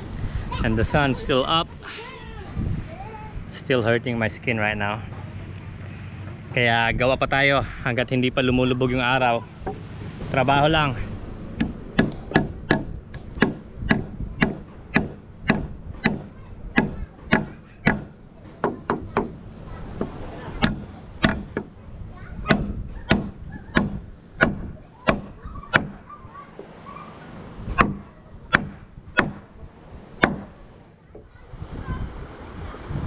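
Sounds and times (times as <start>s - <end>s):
hammer striking nails into wood: 11.6s - 19.4s, 20.6s - 21.7s, 22.5s - 26.0s, 27.8s - 29.4s, 30.2s - 30.5s.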